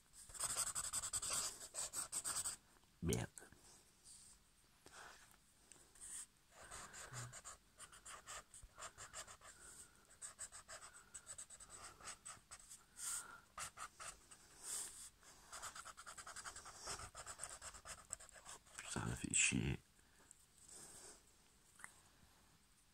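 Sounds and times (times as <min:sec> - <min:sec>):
marker scratching on paper: 0:00.3 - 0:02.6, 0:06.0 - 0:18.8.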